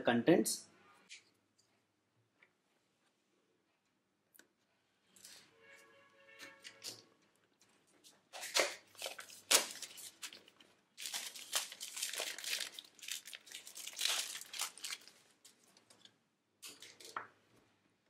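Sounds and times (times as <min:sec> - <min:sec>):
plastic shrink-wrap crinkling: 0:08.4 - 0:17.3.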